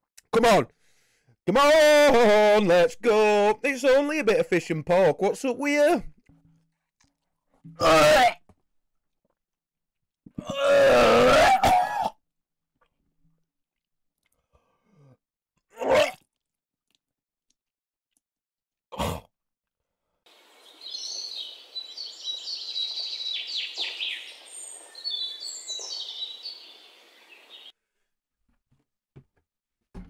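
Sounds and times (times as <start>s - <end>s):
birds chirping: 20.3s - 27.7s
outdoor ambience hiss: 20.3s - 27.7s.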